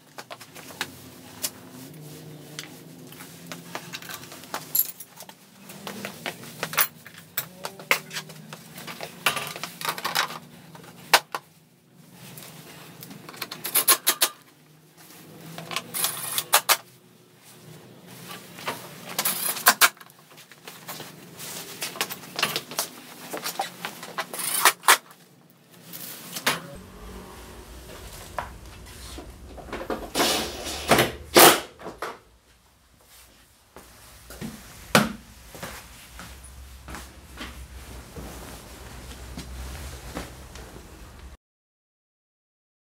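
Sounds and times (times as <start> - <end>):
tools and parts clicking and rattling: 3.8 - 5.4, 6.0 - 8.1, 8.8 - 11.4, 13.0 - 14.5, 15.6 - 16.9, 19.0 - 20.2, 21.9 - 25.1.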